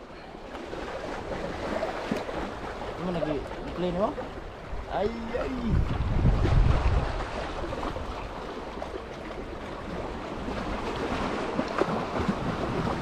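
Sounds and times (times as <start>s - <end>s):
choppy water lapping: 0.0s - 13.0s
wind buffeting microphone: 3.4s - 8.5s
wind rushing: 5.5s - 7.2s.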